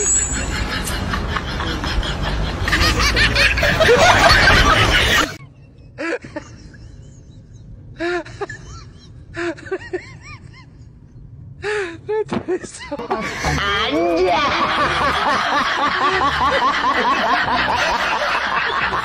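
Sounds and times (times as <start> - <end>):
child laughing loudly: 0.0 - 5.4, 13.3 - 19.0.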